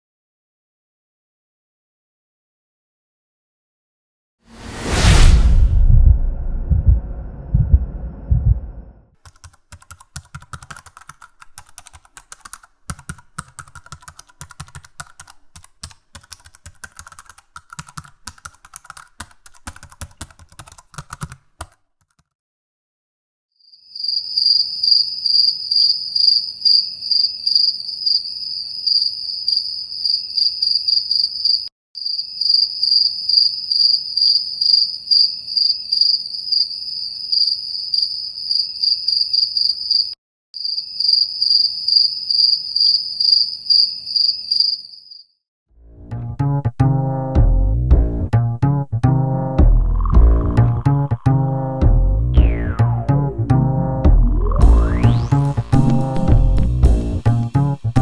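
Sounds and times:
loud low rumbling: 0:04.6 - 0:09.1
keyboard typing: 0:09.2 - 0:22.3, 0:54.4 - 0:56.5
crickets chirping: 0:23.7 - 0:45.3.

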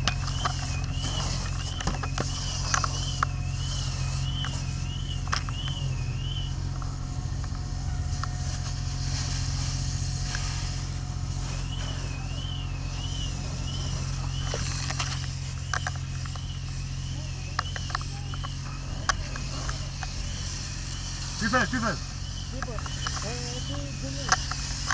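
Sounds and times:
warbling electronic alarm: 0:00.0 - 0:09.0, 0:10.9 - 0:24.9
hose spraying water: 0:00.0 - 0:24.9
pump engine running: 0:00.0 - 0:24.9
sharp clicks: 0:22.5 - 0:24.9.

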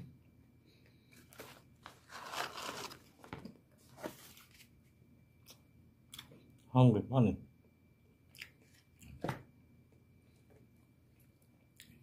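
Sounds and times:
crunching while eating: 0:01.2 - 0:03.3, 0:08.3 - 0:09.2, 0:11.1 - 0:12.0
food wrapper crinkling: 0:01.3 - 0:03.4.

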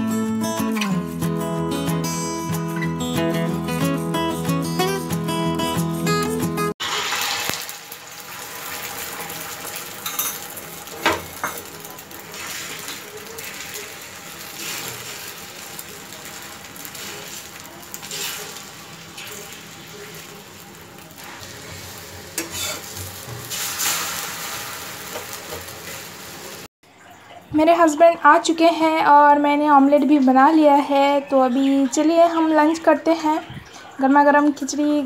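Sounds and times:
egg sizzling on a griddle: 0:06.8 - 0:26.7
spatula scraping and knocking pan: 0:21.3 - 0:24.0.

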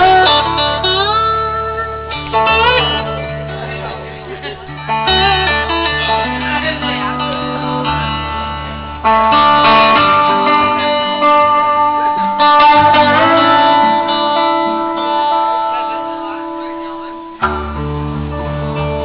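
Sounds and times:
blues band playing: 0:00.0 - 0:19.0
slide guitar gliding notes: 0:00.0 - 0:19.0.

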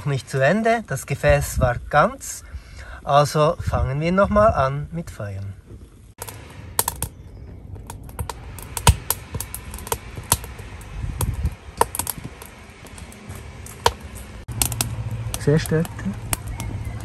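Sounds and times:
low rumble of burning: 0:00.0 - 0:17.0
wood fire crackling: 0:00.0 - 0:17.0
fire popping and cracking: 0:05.7 - 0:17.0.

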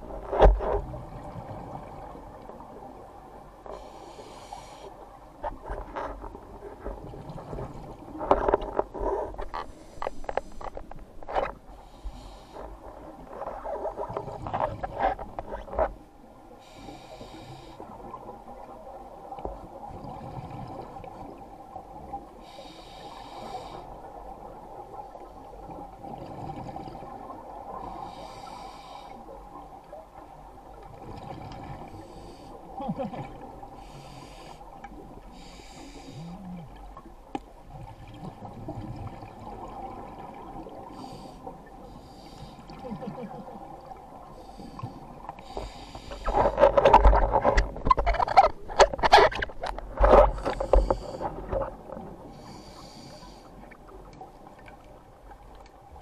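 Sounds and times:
regulator air hiss: 0:03.8 - 0:04.9.

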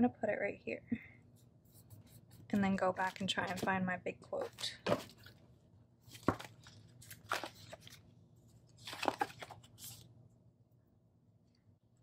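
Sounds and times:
paper sheets rustling: 0:01.7 - 0:03.7, 0:06.0 - 0:08.0, 0:08.6 - 0:10.1.

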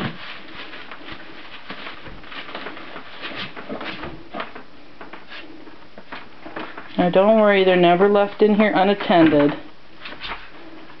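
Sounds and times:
puppy claws pattering on floor: 0:00.0 - 0:07.4.

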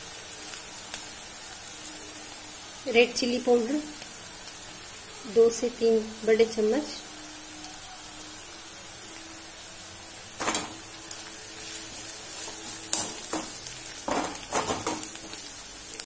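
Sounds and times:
onions sizzling in hot oil: 0:00.0 - 0:16.0
metal spoon scraping pan: 0:10.4 - 0:10.9, 0:11.6 - 0:15.4.

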